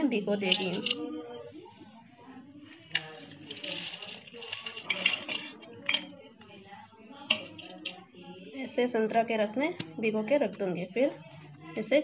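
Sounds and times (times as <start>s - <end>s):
nuts rustling: 2.9s - 5.6s.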